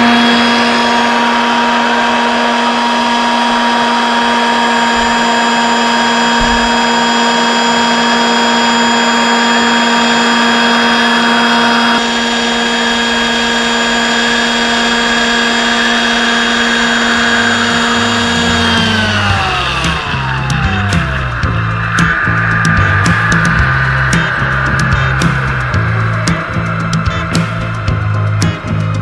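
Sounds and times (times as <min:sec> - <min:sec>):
toy street sweeper motor whine: 0:00.0 - 0:29.0.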